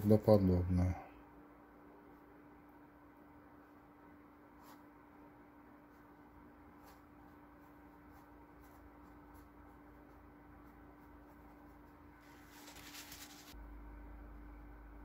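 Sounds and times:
steady low hum: 0.0s - 15.0s
paintbrush scratching on canvas: 5.9s - 13.6s.

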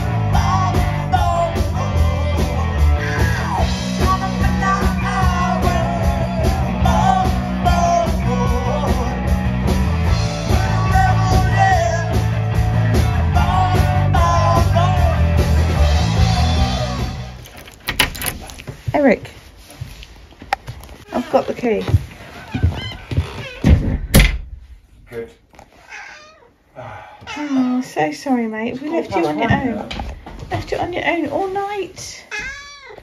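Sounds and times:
man singing into a microphone: 0.0s - 9.3s, 10.3s - 15.4s
rock band playing: 0.0s - 17.4s.

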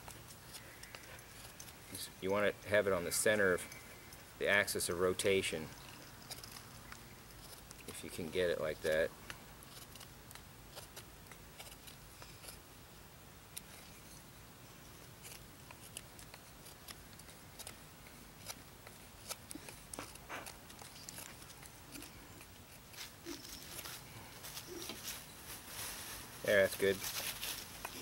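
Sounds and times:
knife scraping wood: 0.0s - 4.1s, 5.7s - 12.6s, 14.9s - 25.2s.

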